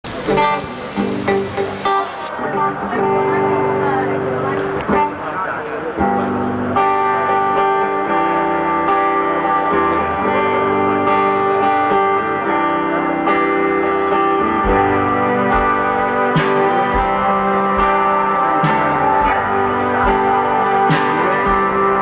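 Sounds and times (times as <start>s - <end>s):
electric guitar chords: 0.0s - 22.0s
live rock band: 0.0s - 22.0s
low thumps: 14.5s - 22.0s.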